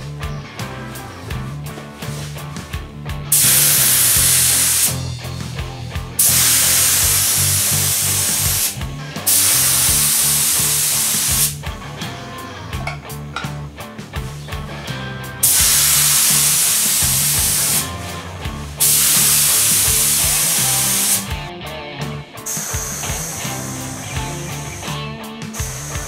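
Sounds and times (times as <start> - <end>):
spray gun hissing: 3.3 - 5.0, 6.2 - 11.6, 15.4 - 18.0, 18.8 - 21.4, 22.5 - 25.0.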